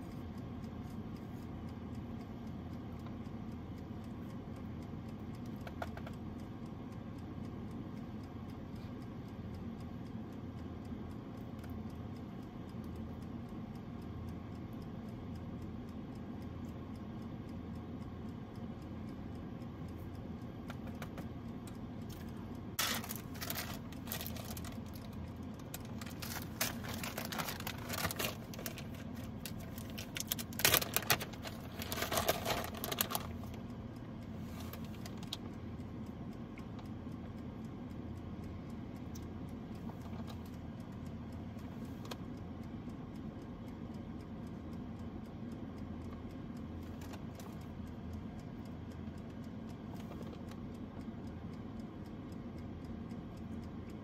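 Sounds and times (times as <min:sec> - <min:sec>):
air fryer humming: 0:00.0 - 0:54.0
packaging rustling and crinkling: 0:22.8 - 0:24.6, 0:26.0 - 0:28.8.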